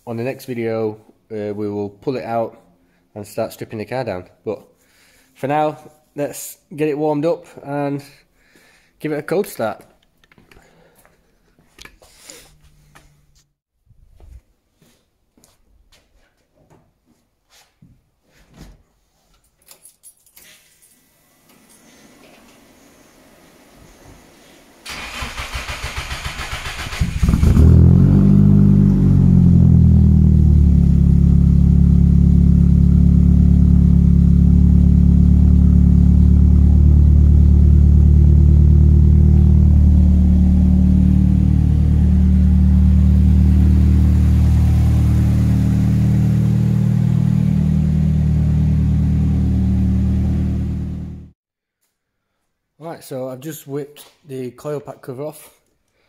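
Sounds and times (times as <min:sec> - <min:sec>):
car engine revving then idling: 0:24.9 - 0:51.4.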